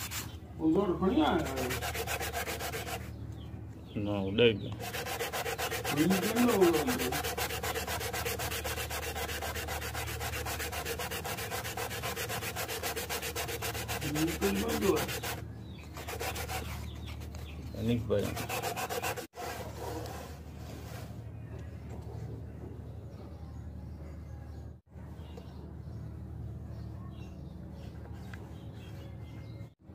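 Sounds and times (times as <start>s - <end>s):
sandpaper scratching on wood: 0.0s - 0.3s, 1.0s - 3.1s, 4.8s - 17.3s, 17.9s - 20.4s.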